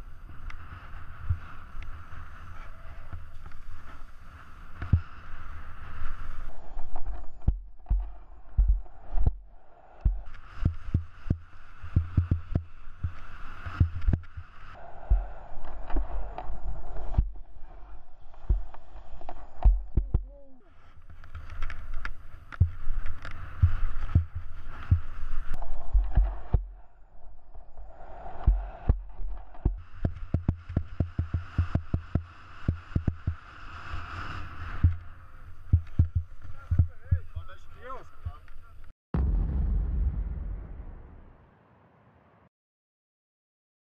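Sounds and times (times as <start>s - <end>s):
skis scraping over snow: 0.0s - 7.4s, 10.3s - 14.8s, 20.8s - 26.5s, 29.4s - 38.1s
low thumps and knocks: 7.4s - 11.4s, 12.0s - 16.1s, 18.4s - 20.4s, 23.6s - 25.2s, 25.8s - 26.8s, 28.4s - 33.4s, 35.7s - 37.3s, 39.1s - 41.3s.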